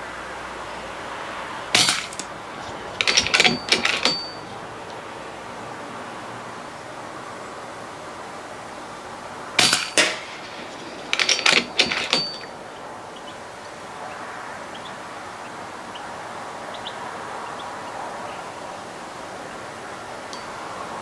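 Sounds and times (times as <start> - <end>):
sharp metallic clinks: 1.8 - 2.3, 3.0 - 4.6, 9.6 - 12.6.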